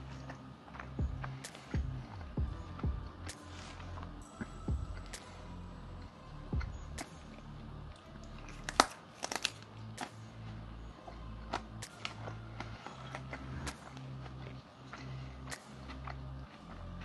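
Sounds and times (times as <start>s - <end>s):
crunchy food chewing: 6.6s - 17.0s.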